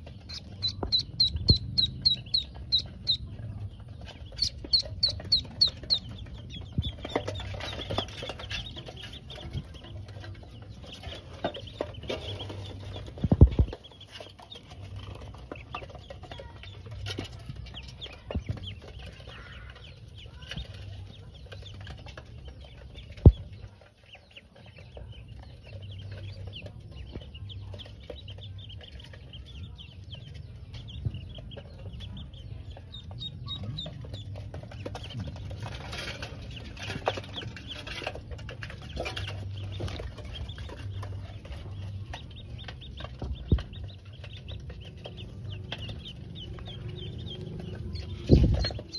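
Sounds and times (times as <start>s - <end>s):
ducklings peeping: 0.0s - 48.9s.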